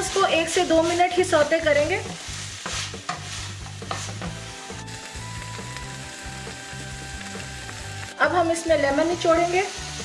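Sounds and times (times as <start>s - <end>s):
wooden spoon scraping: 0.0s - 4.5s
background music: 0.0s - 10.0s
food sizzling in a frying pan: 0.0s - 10.0s.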